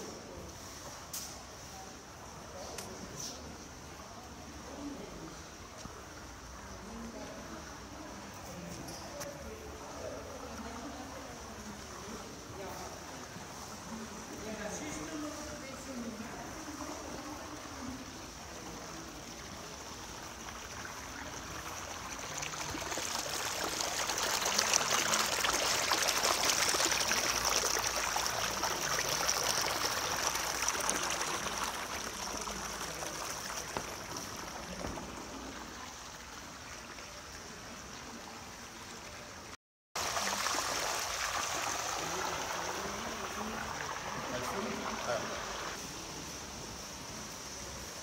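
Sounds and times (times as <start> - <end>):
water jet splashing into basin: 16.4 - 36.8, 40.0 - 45.9.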